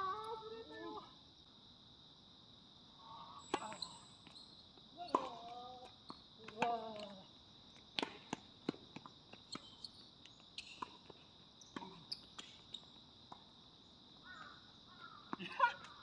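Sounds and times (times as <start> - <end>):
ball bouncing on hard court: 5.1 - 5.6.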